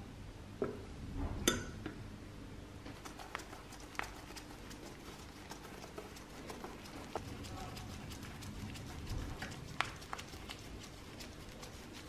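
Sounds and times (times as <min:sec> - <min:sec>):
light irregular ticks: 0:08.7 - 0:11.3.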